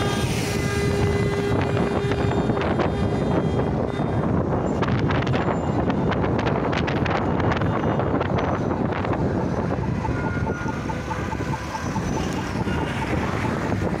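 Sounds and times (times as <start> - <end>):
road traffic: 0.0 - 14.0
wind buffeting microphone: 0.0 - 14.0
pedestrian crossing signal beeps: 6.8 - 14.0.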